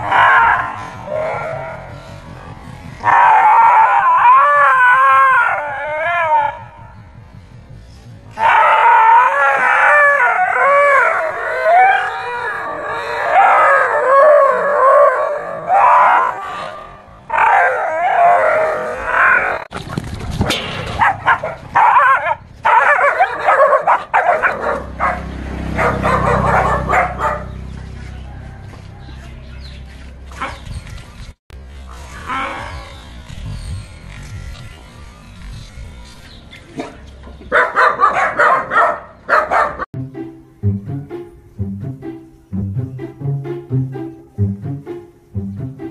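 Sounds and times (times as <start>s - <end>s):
low rumble: 0.6s - 4.9s, 5.7s - 8.4s
dog yelping and howling: 3.0s - 6.7s, 8.4s - 19.7s, 21.0s - 25.2s.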